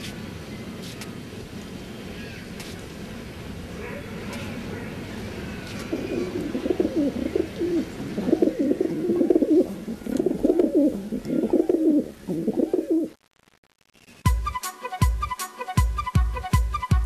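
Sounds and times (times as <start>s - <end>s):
pigeons cooing: 3.7s - 13.2s.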